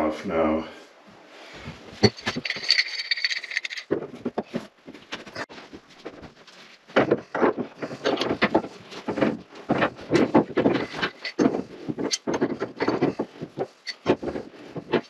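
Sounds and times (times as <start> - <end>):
knocking and rattling on faucet fittings: 2.0 - 5.5, 7.0 - 15.0.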